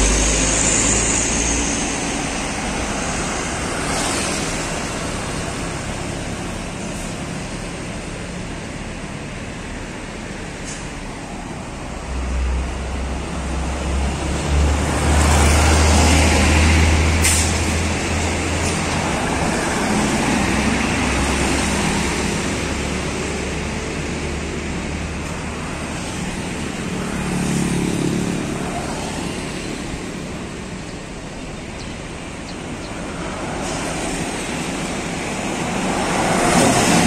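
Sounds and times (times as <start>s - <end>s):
bus diesel engine rumble: 0.0s - 37.0s
road traffic: 0.0s - 37.0s
air brakes hiss: 17.2s - 17.7s.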